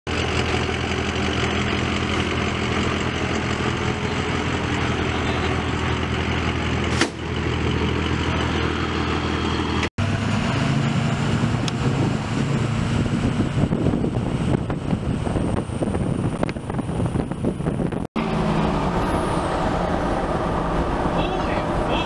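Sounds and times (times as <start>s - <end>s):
truck engine idling: 0.1s - 9.9s
engine running: 0.1s - 22.0s.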